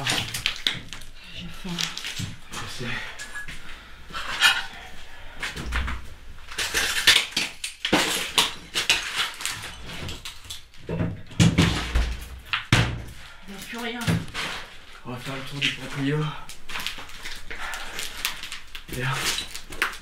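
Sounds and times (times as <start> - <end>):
cupboard doors and objects clattering: 5.4 - 13.2, 13.8 - 14.9.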